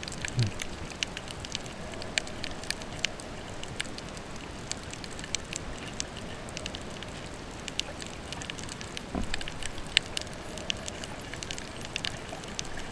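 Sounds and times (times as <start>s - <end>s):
low muffled thump: 9.1s - 9.4s.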